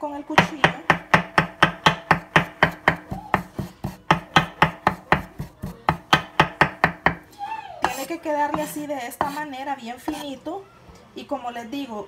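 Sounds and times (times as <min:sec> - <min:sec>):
knife chopping meat on wooden board: 0:00.4 - 0:07.2, 0:07.8 - 0:09.4.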